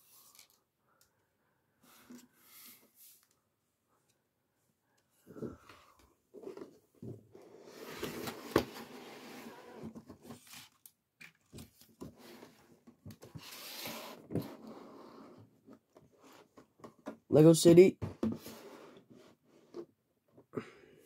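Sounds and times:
cardboard boxes scraping and rustling: 0:07.4 - 0:10.7, 0:12.0 - 0:15.5.

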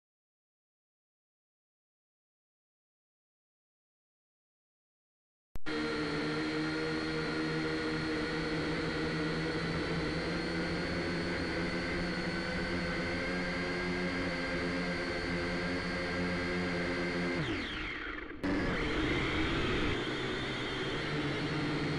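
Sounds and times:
drone motors whining: 0:05.7 - 0:21.9.

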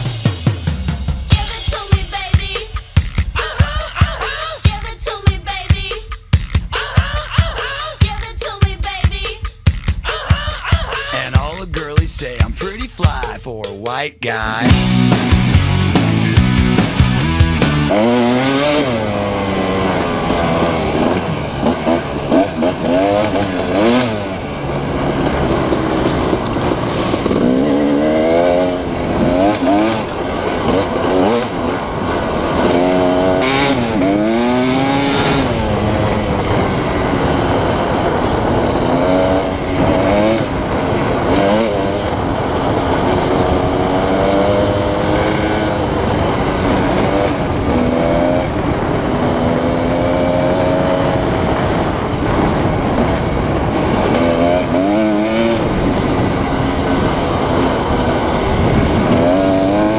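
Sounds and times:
dirt bike engine revving: 0:14.5 - 0:59.9.

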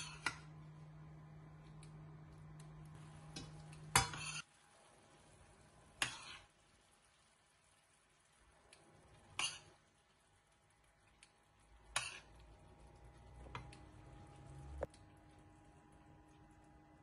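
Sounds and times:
metal spoon scraping a frying pan: 0:00.0 - 0:00.5, 0:03.4 - 0:04.5, 0:06.0 - 0:06.6, 0:09.1 - 0:09.9, 0:11.8 - 0:12.4.

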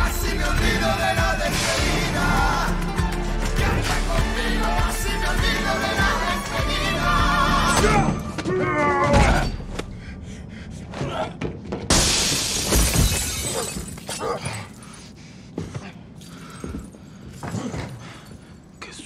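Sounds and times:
song playing: 0:00.0 - 0:08.3
glass shattering: 0:11.9 - 0:14.5
glass debris clinking: 0:11.9 - 0:14.8.

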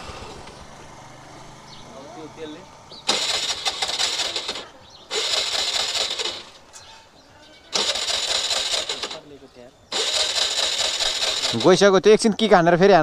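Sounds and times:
scooter engine cranking: 0:00.0 - 0:01.8, 0:02.9 - 0:06.8, 0:07.7 - 0:12.0.

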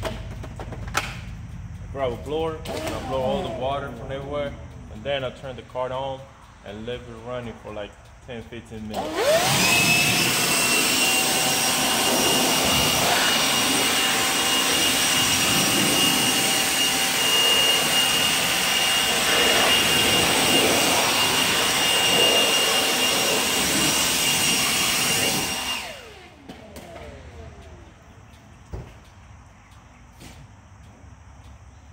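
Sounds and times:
leaf blower whine and air rush: 0:01.9 - 0:05.2, 0:08.7 - 0:29.2.

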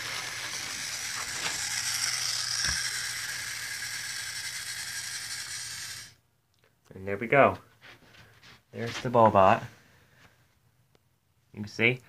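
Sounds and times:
robot servos whirring: 0:00.0 - 0:06.2.

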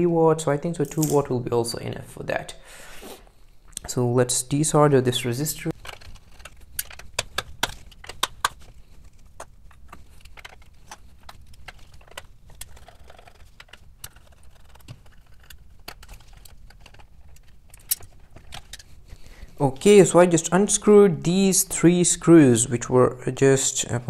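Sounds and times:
screwdriver clicks and rattles: 0:00.8 - 0:01.2, 0:05.7 - 0:18.9
plastic case handled: 0:05.7 - 0:20.0.

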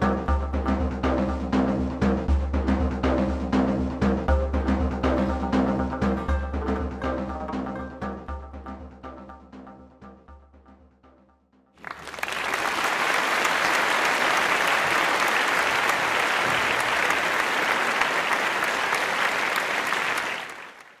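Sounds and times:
background music: 0:00.0 - 0:12.8
crowd applause: 0:11.8 - 0:21.0.

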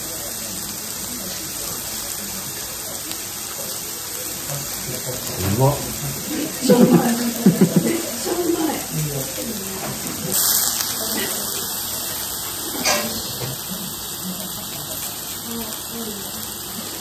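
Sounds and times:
meat and vegetables sizzling on griddle: 0:00.0 - 0:17.0
person speaking: 0:04.9 - 0:08.9.

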